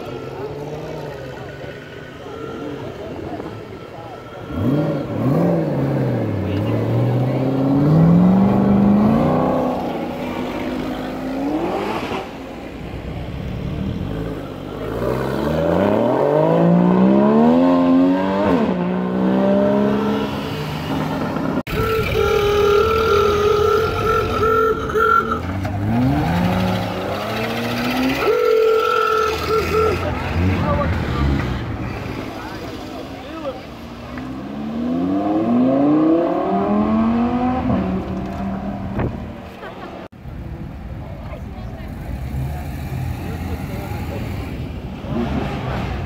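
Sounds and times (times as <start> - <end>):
car engine holding raised revs: 0.0 - 40.1.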